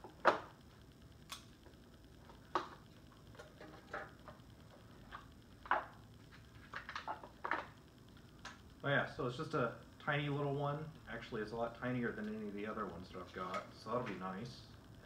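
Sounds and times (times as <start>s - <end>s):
packaging clicks and rustles: 5.1s - 7.8s.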